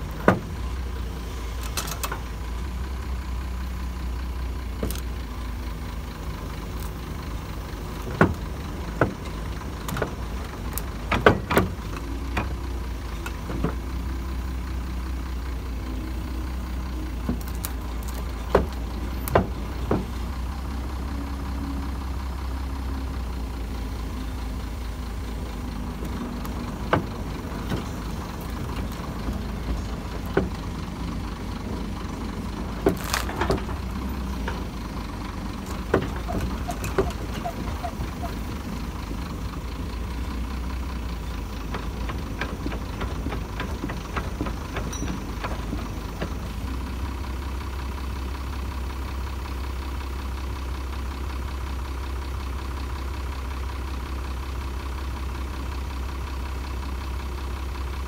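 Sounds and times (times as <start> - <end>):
diesel engine running under load: 0.0 - 58.0
metallic clanks of track links: 42.1 - 45.8.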